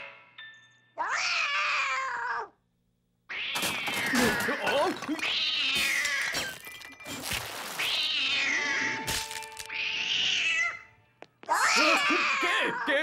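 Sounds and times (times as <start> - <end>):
cartoon cat yowling: 1.0 - 2.6, 11.5 - 13.0
china and glass breaking: 3.6 - 7.8, 9.0 - 9.7.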